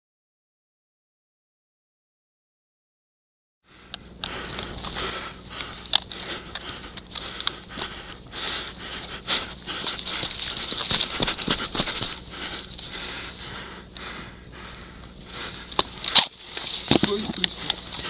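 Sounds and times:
breathing: 3.6s - 18.0s
gear rustling: 4.3s - 13.7s, 15.2s - 18.0s
footsteps on frosty grass: 7.6s - 13.6s.

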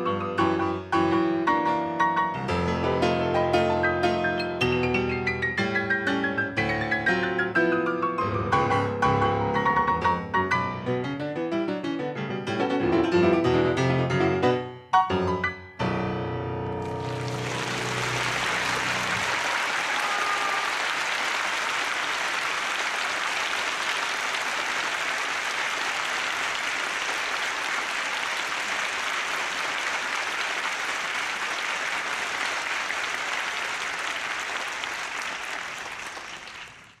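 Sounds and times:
audience applauding: 16.8s - 37.0s.

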